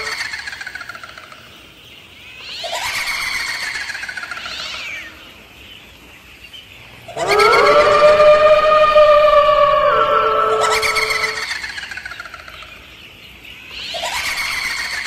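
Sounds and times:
siren-like wailing tone: 7.1 - 11.4.

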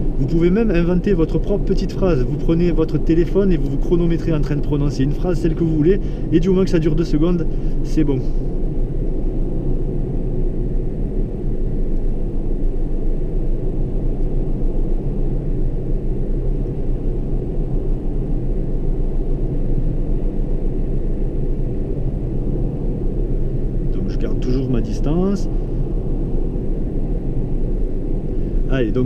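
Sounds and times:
car engine hum: 0.0 - 20.0.

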